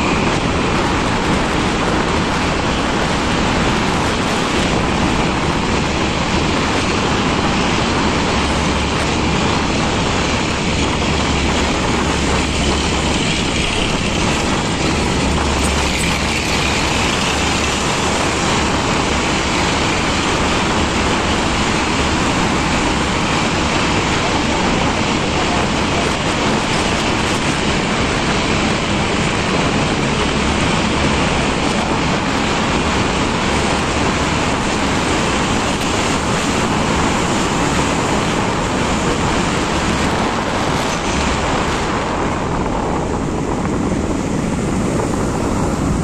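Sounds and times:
deep rumble: 0.0 - 46.0
traffic noise in tunnel: 0.0 - 46.0.

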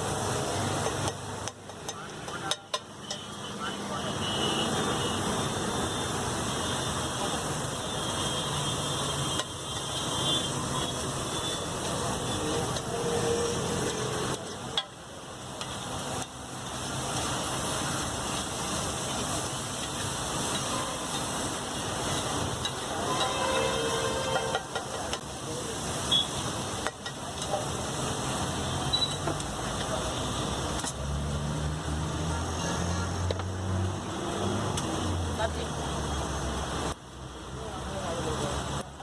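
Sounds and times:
food sizzling on griddle: 0.0 - 39.0
street traffic: 0.0 - 39.0
metal spatula knocking and scraping: 0.8 - 3.4, 22.6 - 25.2.

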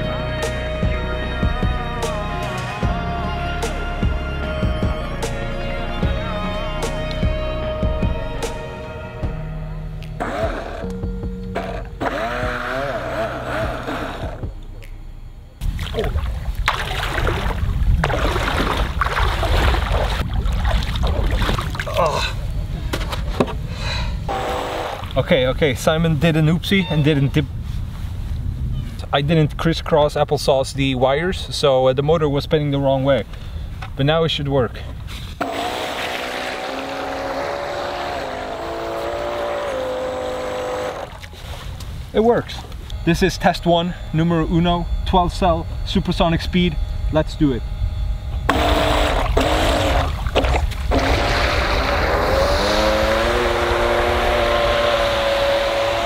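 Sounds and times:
electric motor whine: 6.0 - 16.6, 24.3 - 25.3, 35.4 - 41.2, 42.7 - 56.0
gusty wind and water noise: 15.6 - 23.8, 48.5 - 53.1.

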